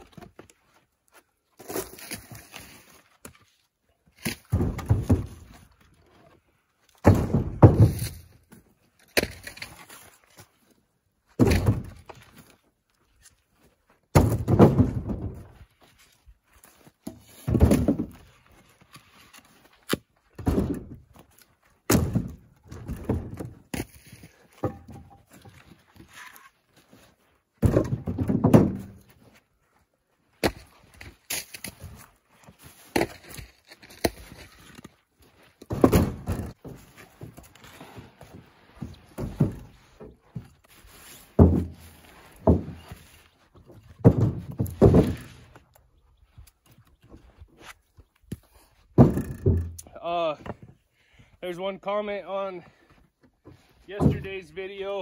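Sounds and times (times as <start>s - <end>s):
firewood blocks knocking in truck bed: 7.0s - 8.2s, 14.2s - 15.4s, 27.6s - 29.0s, 49.0s - 49.8s.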